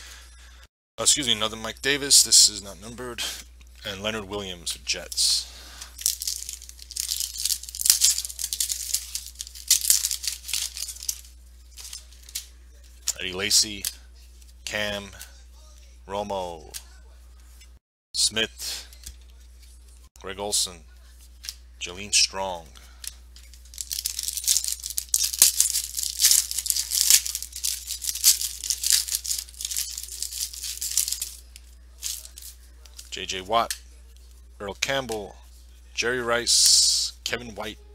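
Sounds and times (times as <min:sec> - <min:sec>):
cards swishing and scraping: 0:04.7 - 0:15.3, 0:23.3 - 0:35.7
foil wrapper tearing and crinkling: 0:06.0 - 0:11.2, 0:23.7 - 0:31.4.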